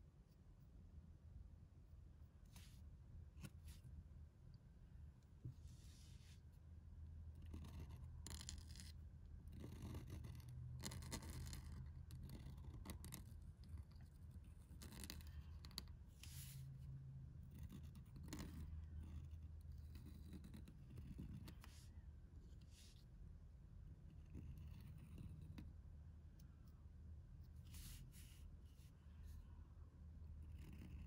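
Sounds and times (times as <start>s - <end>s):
low room hum: 0.0s - 31.0s
pen nib scratching on paper: 7.3s - 16.6s, 17.4s - 21.9s, 24.1s - 25.8s, 27.4s - 29.4s, 30.2s - 31.0s.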